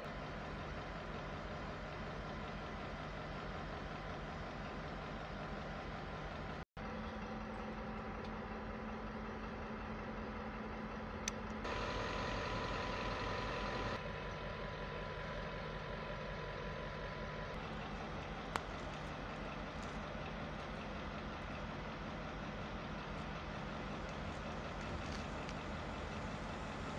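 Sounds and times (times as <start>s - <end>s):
diesel locomotive idling: 0.0s - 26.9s
thin steady whine: 11.0s - 26.9s.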